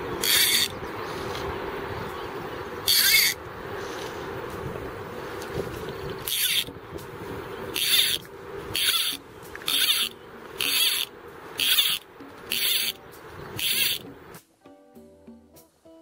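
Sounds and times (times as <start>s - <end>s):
fly reel ratchet buzzing: 0.2s - 0.8s, 2.8s - 3.4s, 5.8s - 14.1s.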